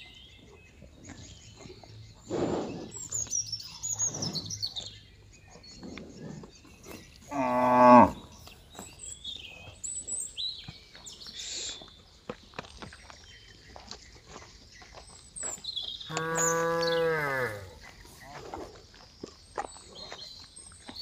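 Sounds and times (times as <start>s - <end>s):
birds chirping: 0.0s - 21.0s
cow mooing: 7.3s - 8.3s, 16.1s - 17.8s.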